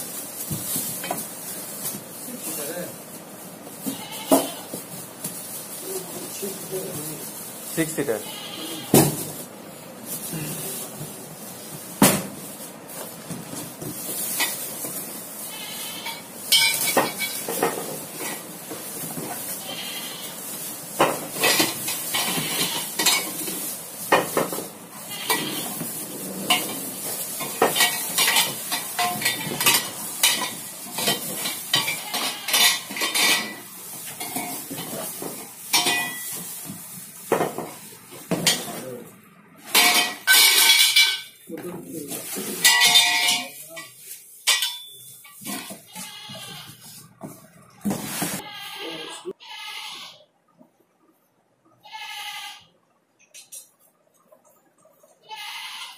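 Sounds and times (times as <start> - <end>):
plastic and cardboard rustling: 0.0 - 48.5
metal frame parts clinking: 39.7 - 41.4, 42.6 - 45.7.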